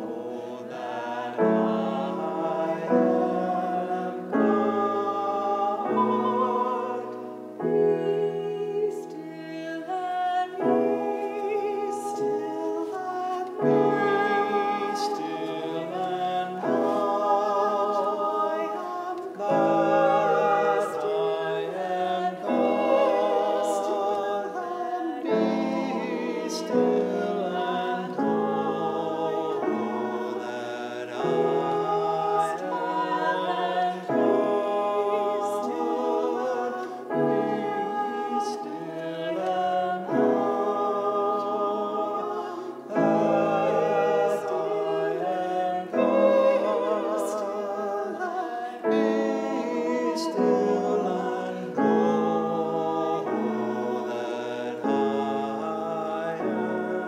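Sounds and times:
man and woman singing in harmony: 0.0s - 57.0s.

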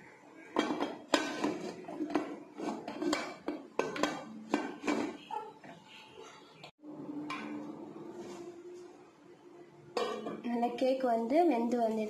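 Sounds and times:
metal lid clanking and scraping: 0.6s - 5.8s, 10.0s - 10.4s.

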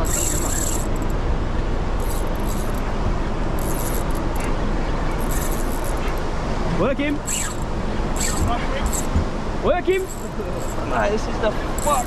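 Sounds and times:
fishing reel whirring: 0.0s - 1.2s, 2.0s - 2.9s, 3.5s - 4.5s, 5.1s - 6.2s, 7.2s - 9.2s, 10.0s - 10.9s, 11.6s - 12.0s.

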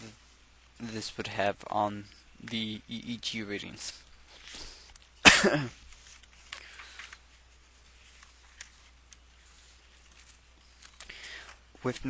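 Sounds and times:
short rustle: 3.8s - 12.0s.

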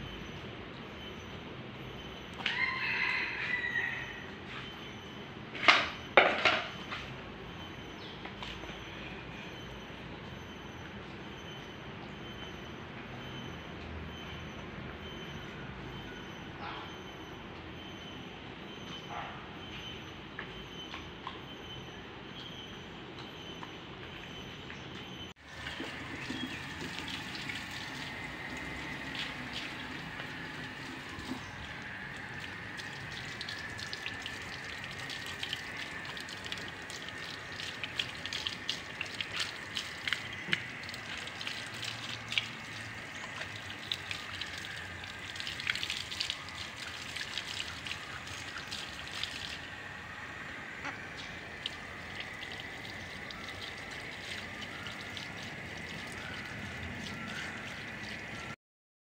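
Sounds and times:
water splashes and drips: 23.2s - 58.6s
garden hose spraying water: 25.4s - 58.6s.

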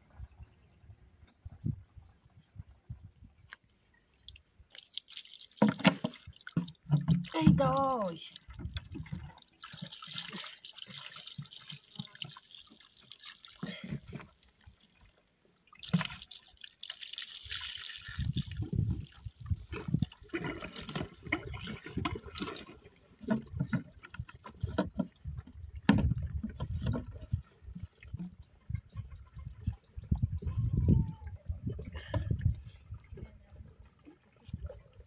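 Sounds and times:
water splashing and trickling: 0.0s - 35.0s.

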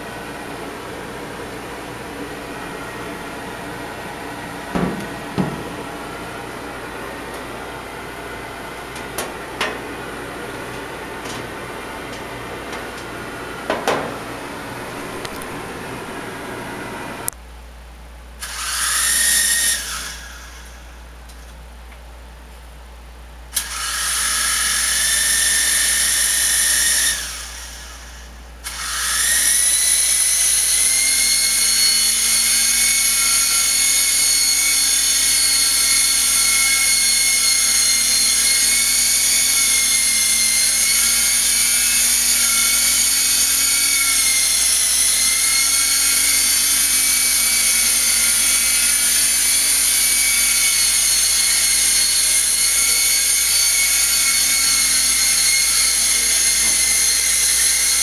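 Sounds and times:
toy helicopter motor whine: 18.4s - 21.0s, 23.6s - 58.0s.

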